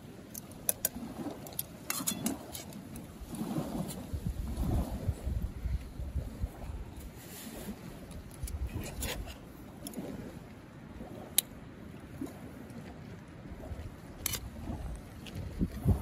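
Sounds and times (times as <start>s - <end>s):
wind gusting on microphone: 2.2s - 11.4s, 13.4s - 16.0s.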